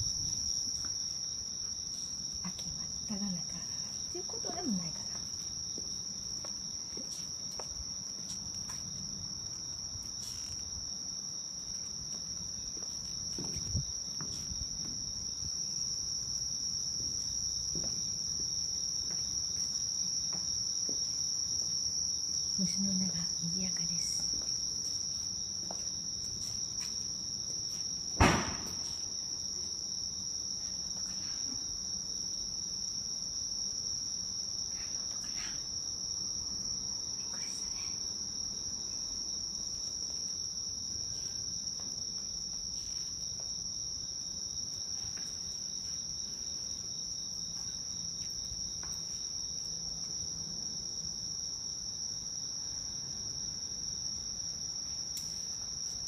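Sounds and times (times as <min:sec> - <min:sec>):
insects singing: 0:00.0 - 0:53.2
sharp knock: 0:28.2 - 0:28.9.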